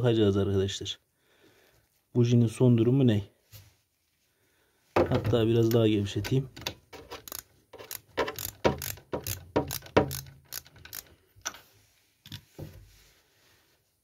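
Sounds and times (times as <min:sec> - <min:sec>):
ratchet wrench clicking: 0:07.0 - 0:11.5.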